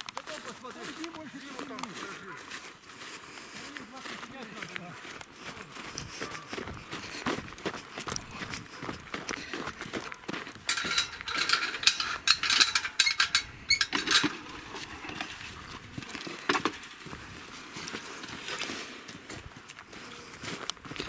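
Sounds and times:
footsteps on dry grass: 0.0 - 21.0
wire-mesh gate and pet carrier rattling: 10.6 - 15.2.

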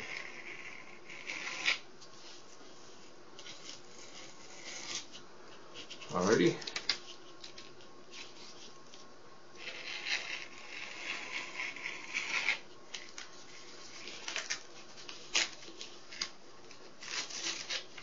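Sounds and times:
light scratching on board: 0.0 - 2.5, 3.4 - 5.2, 9.6 - 14.3.

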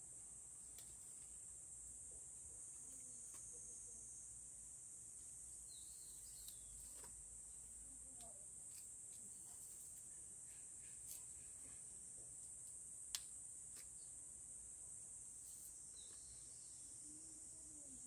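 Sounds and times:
insects droning: 0.0 - 18.0
snaps and rustles of onion stalks: 0.7 - 1.3, 6.3 - 7.2, 8.1 - 9.3, 13.1 - 14.0.

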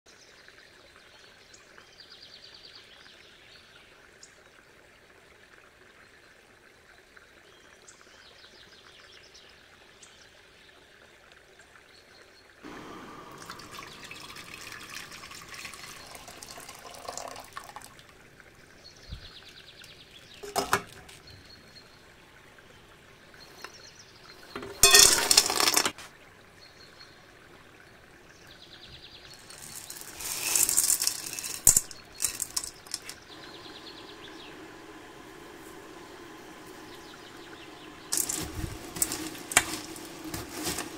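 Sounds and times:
water running and pouring: 12.6 - 21.6, 23.0 - 26.0, 29.1 - 40.9.

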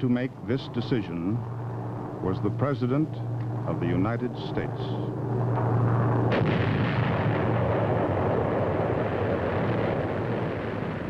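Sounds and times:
aircraft engine drone: 0.0 - 11.0
explosion with long rumble: 5.3 - 11.0.

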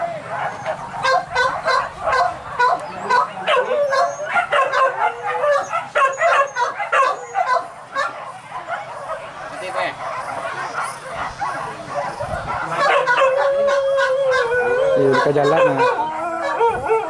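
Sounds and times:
dogs yelping and barking: 0.0 - 17.0.

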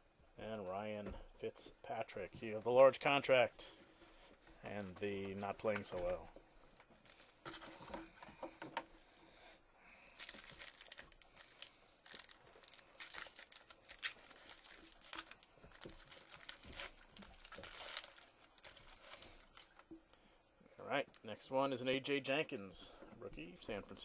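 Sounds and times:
foil wrapper crinkling and tearing: 7.0 - 7.4, 10.1 - 19.8.

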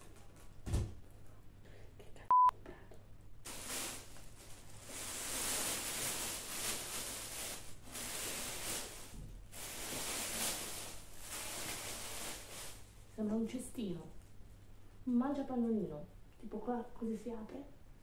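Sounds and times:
short electronic beep: 2.3 - 2.5
plastic packaging rustling: 3.5 - 13.0.

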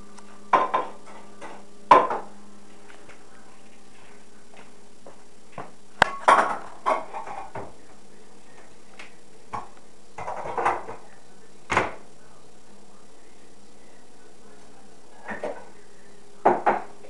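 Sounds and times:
dishes clinking and clattering: 6.1 - 7.7, 9.5 - 11.0.

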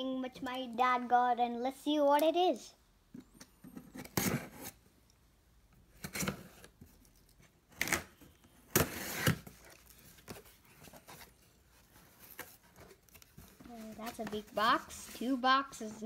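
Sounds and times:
packing tape being slit and torn: 7.1 - 10.0
cardboard flaps rustling: 8.8 - 15.4.

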